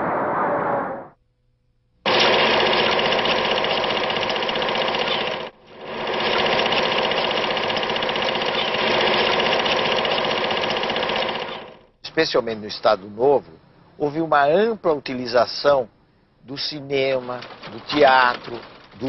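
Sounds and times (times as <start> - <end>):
machine clattering: 2.1 - 11.9, 17.0 - 19.0.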